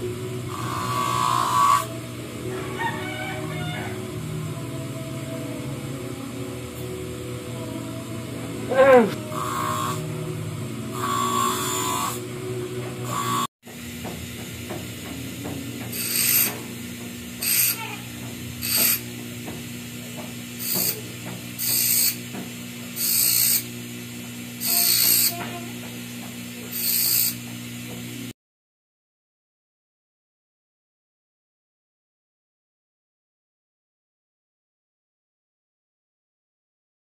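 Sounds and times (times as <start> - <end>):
bench grinder motor running: 0.0 - 28.3
blades hissing on grinding wheel: 0.0 - 28.3.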